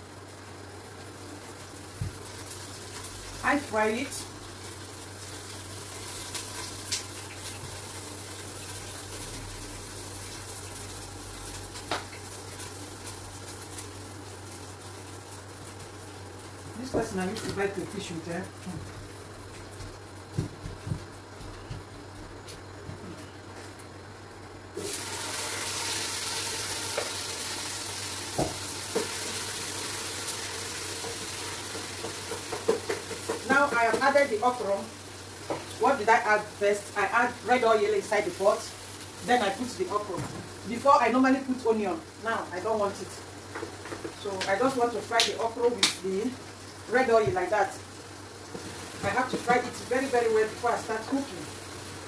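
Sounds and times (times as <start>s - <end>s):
oil hissing in a pot: 0.0s - 16.8s, 24.7s - 52.0s
knocks of stirring in pot: 30.9s - 34.2s.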